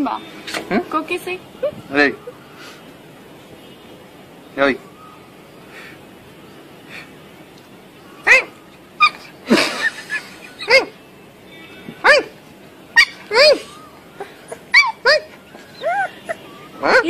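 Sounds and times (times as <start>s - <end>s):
puppy yipping: 8.2s - 9.3s, 12.0s - 12.4s, 13.0s - 17.0s.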